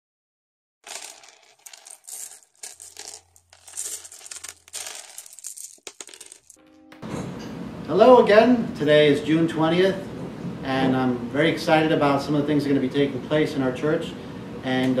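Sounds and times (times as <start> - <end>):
blocks clattering and clinking: 0.8 - 6.6.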